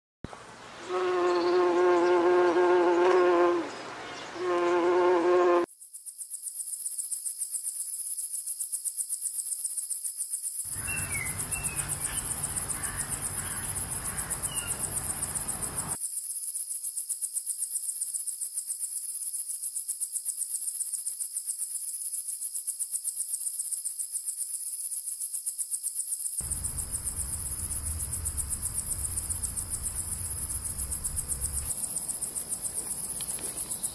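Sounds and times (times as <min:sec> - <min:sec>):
bee buzzing: 0:00.9 - 0:03.7, 0:04.4 - 0:05.7, 0:26.4 - 0:31.7
insects chirring: 0:00.9 - 0:33.9
faint chirps: 0:10.7 - 0:16.0, 0:26.4 - 0:33.9
low rumble: 0:26.4 - 0:31.7.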